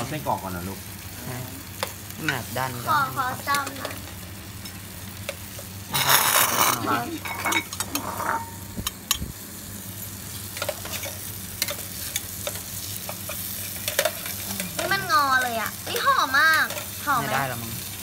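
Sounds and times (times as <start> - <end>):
sausages sizzling in a pan: 0.0 - 18.0
cutlery scraping a pan: 4.6 - 9.2, 10.6 - 17.0.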